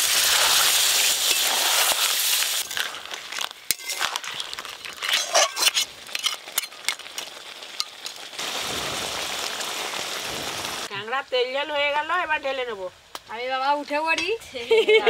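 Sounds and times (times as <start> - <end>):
gravy bubbling and crackling: 0.0 - 10.9
steady sizzling hiss: 0.0 - 15.0
metal spatula scraping pan: 3.6 - 7.1.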